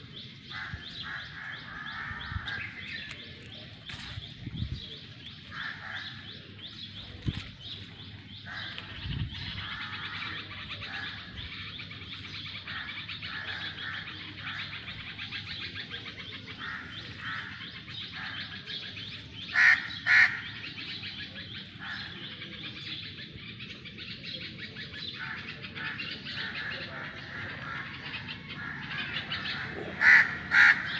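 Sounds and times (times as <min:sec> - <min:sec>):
loud bird calls: 0:00.0 - 0:30.9
small birds chirping: 0:00.0 - 0:30.9.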